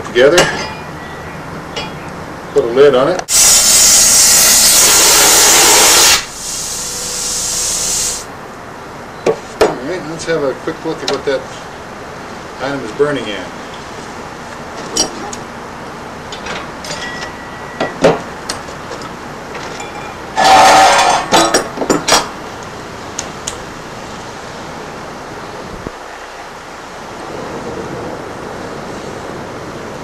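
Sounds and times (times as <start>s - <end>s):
background hiss: 0.0s - 16.8s
metal tools knocking and clinking: 0.3s - 0.9s, 1.7s - 2.0s, 16.3s - 18.2s, 18.9s - 22.4s
sharp metal clanks: 0.3s - 2.0s, 16.4s - 18.2s, 19.7s - 22.4s.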